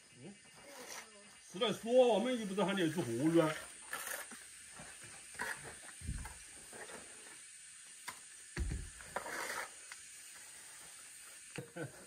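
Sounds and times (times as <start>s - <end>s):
trowel scraping cement render: 0.6s - 1.3s, 2.9s - 7.4s, 8.8s - 10.9s.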